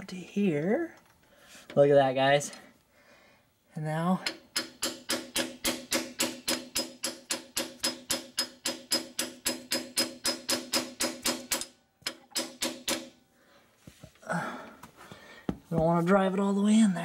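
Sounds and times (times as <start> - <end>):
hammer tapping on metal: 4.2 - 13.1.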